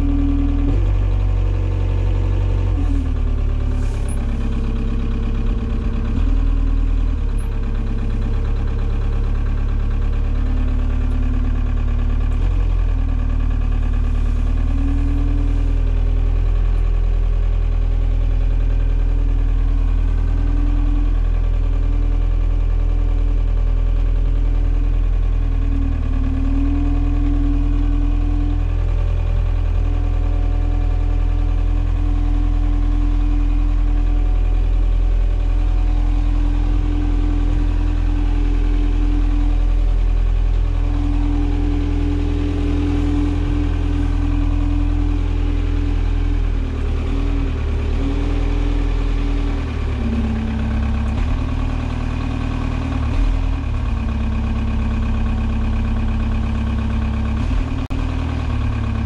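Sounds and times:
forklift hum and whine: 0.0 - 59.0.

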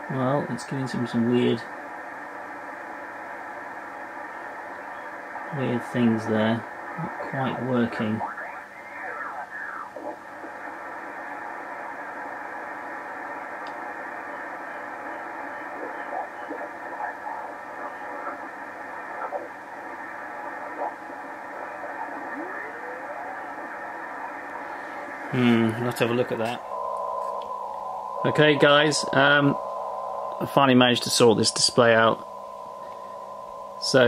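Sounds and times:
radio receiver band hiss: 0.0 - 34.0
faint passing radio signals: 4.5 - 34.0
rising radio whistle: 7.1 - 34.0.

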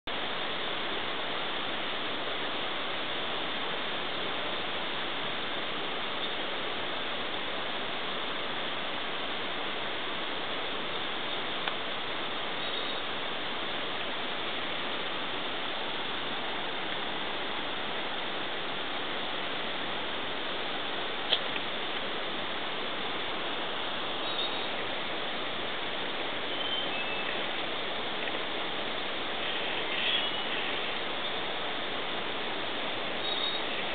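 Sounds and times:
river rushing: 0.1 - 33.9
faint high whistles: 26.5 - 27.4, 33.2 - 33.8.

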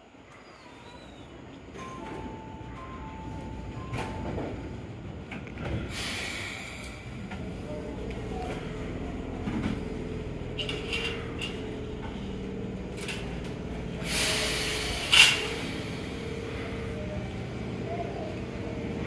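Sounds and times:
electric train humming: 0.9 - 19.0
air hiss: 5.9 - 7.2, 14.0 - 16.2.

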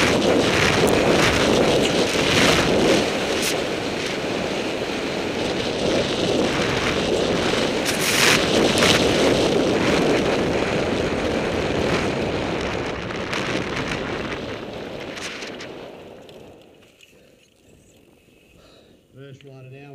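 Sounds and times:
bike clattering: 0.0 - 10.4
wind buffeting microphone: 0.0 - 16.9.

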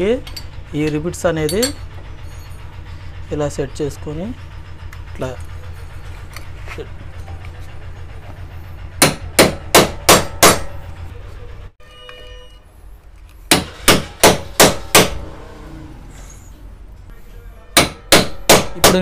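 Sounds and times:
hammer striking steel punch: 9.0 - 10.8, 13.5 - 15.2, 17.8 - 19.0.

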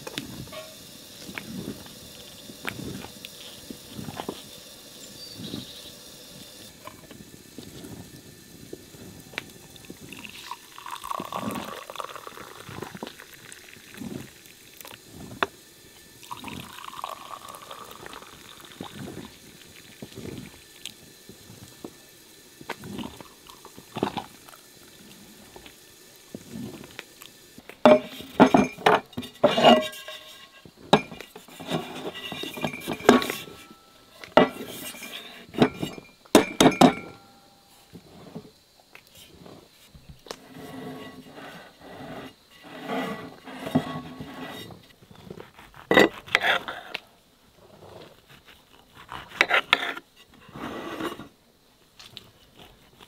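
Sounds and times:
liquid pouring: 0.0 - 37.4
glass and metal clinking: 0.5 - 0.8, 27.8 - 31.3, 31.9 - 37.5
dishes knocking: 27.9 - 30.1, 35.6 - 37.2.

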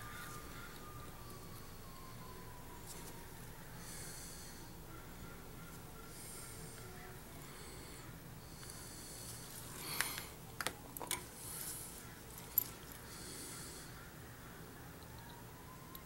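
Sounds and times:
soft breathing: 2.8 - 10.5, 11.2 - 14.4.

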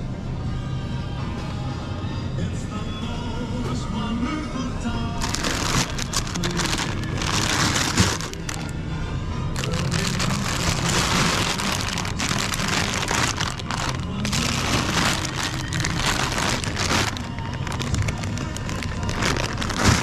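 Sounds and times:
plastic bags crinkling: 5.2 - 8.8, 9.6 - 20.0.

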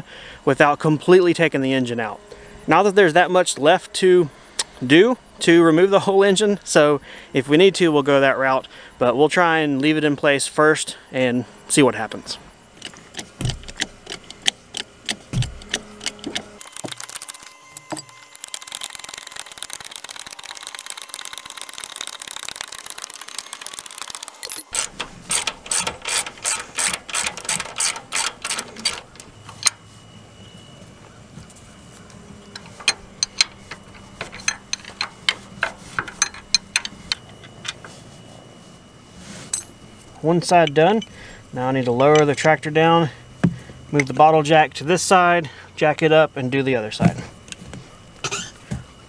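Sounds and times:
ratchet wrench clicking: 16.6 - 29.0.

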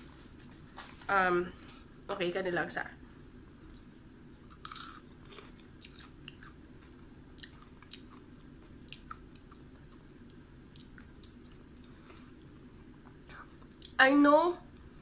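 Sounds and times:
steady low hum: 0.0 - 15.0
crunchy snack chewing: 4.5 - 11.6.

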